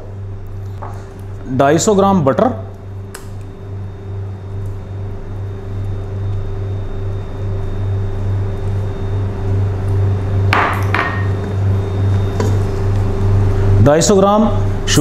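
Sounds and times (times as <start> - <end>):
steady low electrical hum: 0.0 - 15.0.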